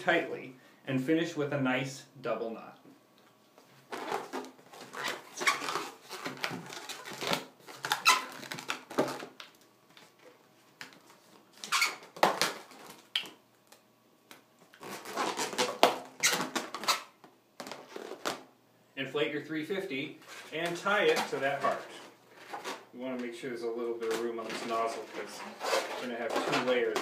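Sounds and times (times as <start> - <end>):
balloon squeaking and rubbing: 3.9 - 9.3, 11.6 - 13.0, 14.8 - 18.5, 20.2 - 22.9, 24.0 - 27.0.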